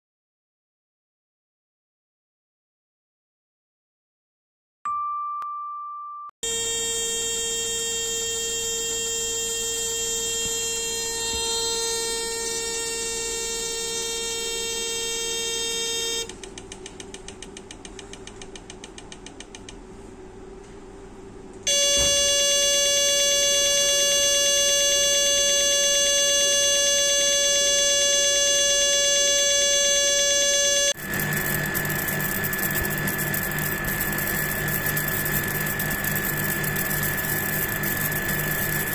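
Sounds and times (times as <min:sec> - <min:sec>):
short electronic tone: 0:05.4 - 0:16.3, 0:21.7 - 0:38.9
rotary table high-pitched whine: 0:06.4 - 0:16.3, 0:21.7 - 0:38.9.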